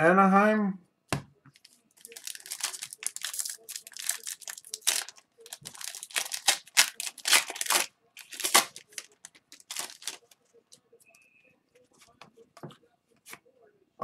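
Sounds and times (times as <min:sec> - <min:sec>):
foil wrapper tearing and crinkling: 0:01.6 - 0:10.3.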